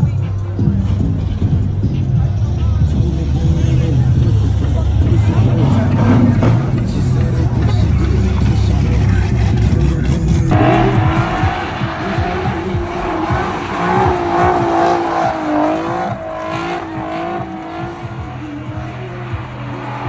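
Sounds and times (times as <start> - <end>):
tyres squealing: 5.2 - 20.0.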